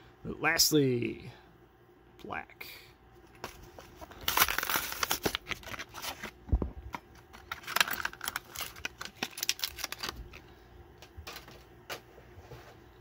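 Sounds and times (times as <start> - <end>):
plastic packaging crackling: 3.4 - 11.5
cardboard tearing: 4.1 - 6.4, 7.6 - 10.2.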